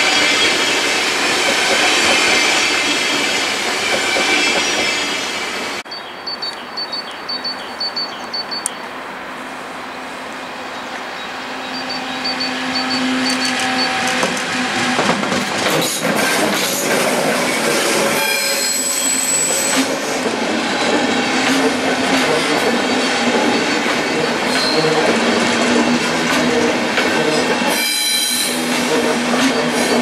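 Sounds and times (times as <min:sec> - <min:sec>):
electric locomotive hum: 0:00.0 - 0:30.0
high wheel squeal: 0:10.4 - 0:14.9, 0:17.4 - 0:26.1, 0:27.6 - 0:28.8.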